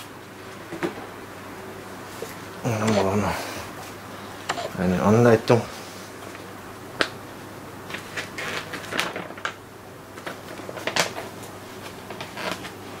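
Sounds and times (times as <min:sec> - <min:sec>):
paper leaflet crackling and rustling: 0:07.9 - 0:13.0.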